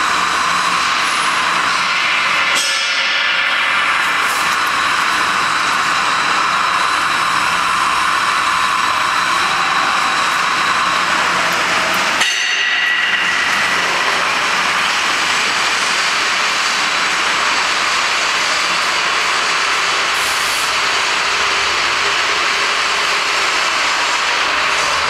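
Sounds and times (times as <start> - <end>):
machinery hiss: 19.4 - 21.0.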